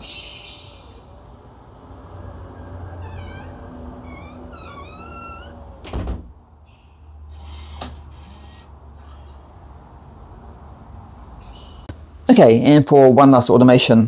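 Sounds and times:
short high squeaks: 0:02.9 - 0:05.8, 0:06.7 - 0:09.4
door opener humming: 0:03.0 - 0:06.1
door closing thud: 0:03.0 - 0:06.4.

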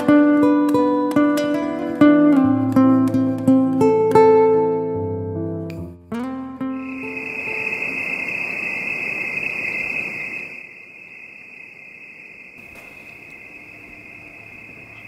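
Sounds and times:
crickets trilling: 0:06.6 - 0:15.0
rushing noise: 0:06.7 - 0:15.0.

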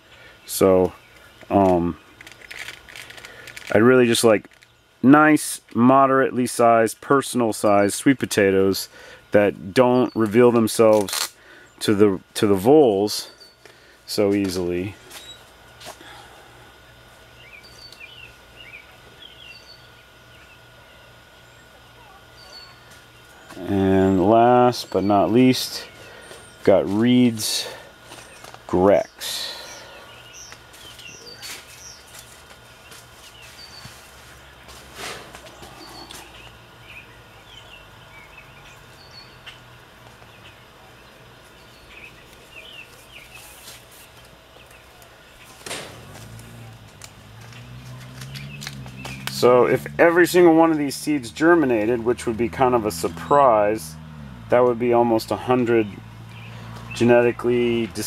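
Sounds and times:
birds chirping: 0:00.0 - 0:02.2, 0:08.9 - 0:58.0
paper seed packet rustling: 0:01.5 - 0:04.8, 0:10.9 - 0:11.3
pulsing low hum: 0:14.9 - 0:43.3, 0:44.5 - 0:58.0.

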